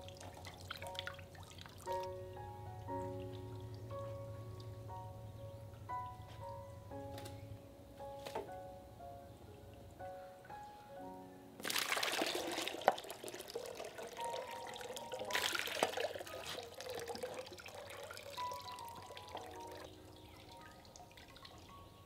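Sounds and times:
water pouring and splashing: 0.0s - 2.2s, 11.6s - 21.9s.

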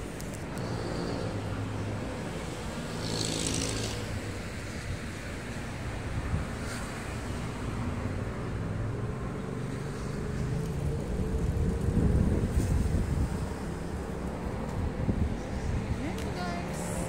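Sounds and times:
road traffic rumble: 0.0s - 17.0s
wind on microphone: 10.8s - 17.0s.

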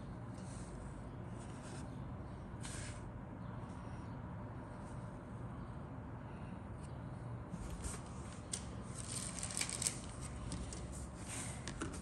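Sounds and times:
plastic parts rustling: 9.0s - 10.9s.

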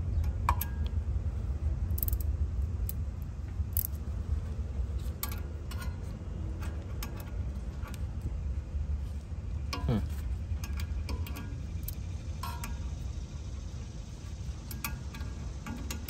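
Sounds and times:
steady low rumble: 0.0s - 16.0s
light metallic clicks: 1.9s - 4.1s, 5.0s - 8.4s, 9.5s - 16.0s.

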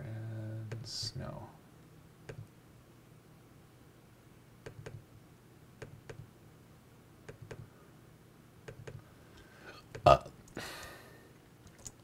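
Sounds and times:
low steady hum: 0.0s - 12.0s
computer mouse clicks: 2.2s - 2.5s, 4.6s - 5.0s, 5.8s - 6.3s, 7.2s - 7.7s, 8.6s - 9.0s, 11.6s - 12.0s.

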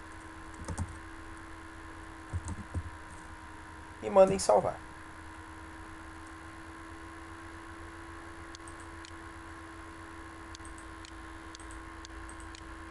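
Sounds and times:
microphone electrical hum and hiss: 0.0s - 12.9s
computer mouse clicks: 8.5s - 9.2s, 10.5s - 12.7s.

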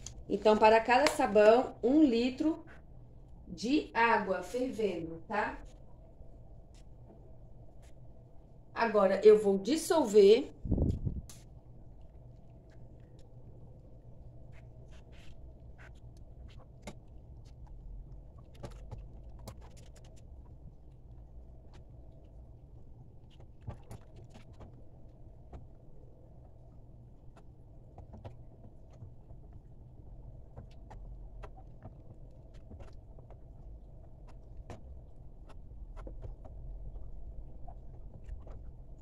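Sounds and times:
low rumble: 10.5s - 12.2s.

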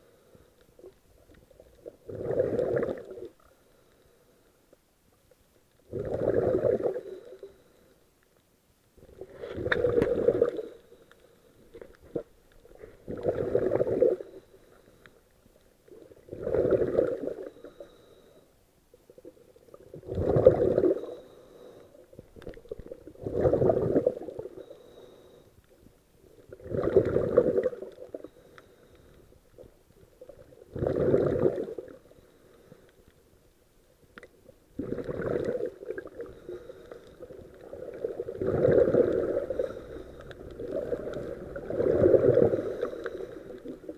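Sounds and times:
diver exhaling bubbles underwater: 1.8s - 3.3s, 5.9s - 7.3s, 9.0s - 10.7s, 13.0s - 14.2s, 16.1s - 17.5s, 19.8s - 21.2s, 22.7s - 24.6s, 26.5s - 28.2s, 30.3s - 32.0s, 34.8s - 36.3s, 37.3s - 43.9s.

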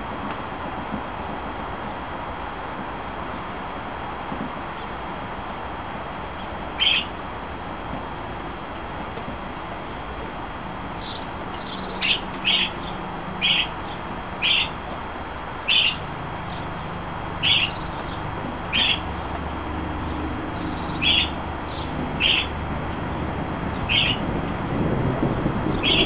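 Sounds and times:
bird chirping: 6.8s - 7.1s, 11.0s - 14.8s, 15.6s - 19.2s, 20.0s - 22.6s, 23.7s - 24.2s, 25.7s - 26.0s.

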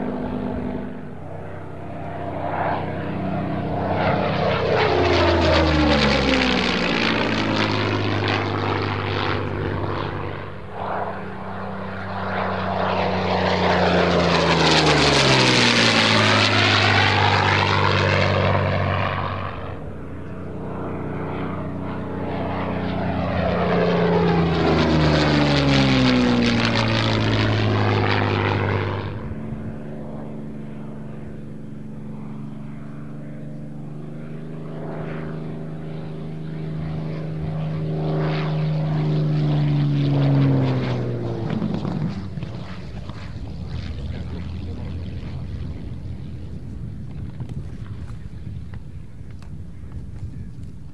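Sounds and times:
propeller plane flying past: 0.0s - 50.9s.

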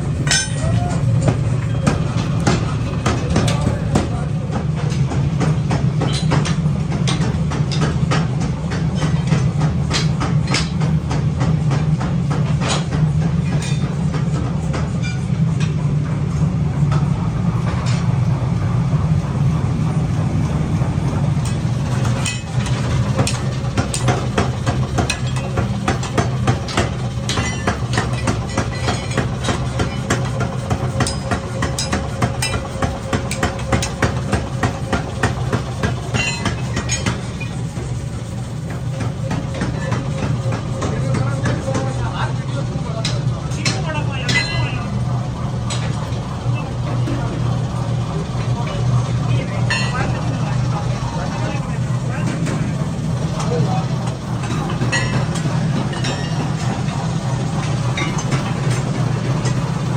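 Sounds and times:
low machinery hum: 0.0s - 59.9s.

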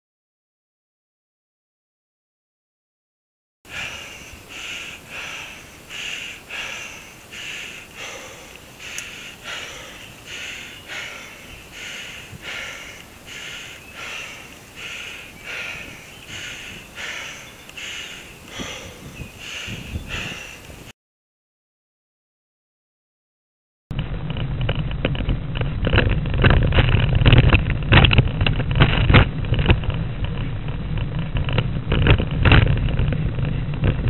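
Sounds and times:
heavy panting breathing: 3.7s - 20.8s.

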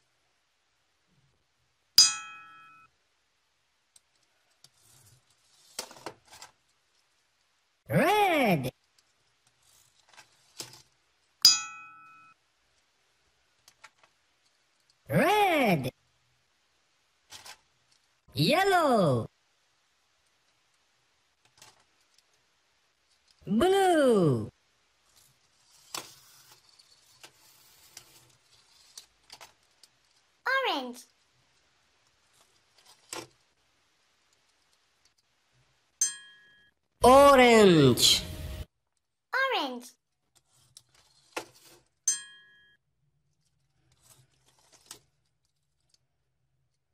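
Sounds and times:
sharp metallic ding: 2.0s - 2.9s, 11.5s - 12.3s, 42.1s - 42.6s.

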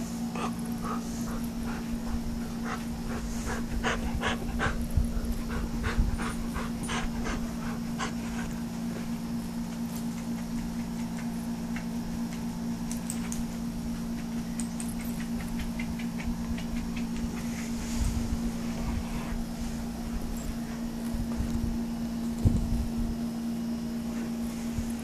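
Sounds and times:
steady low hum: 0.0s - 25.0s
puppy panting: 0.3s - 9.2s, 14.0s - 17.8s.

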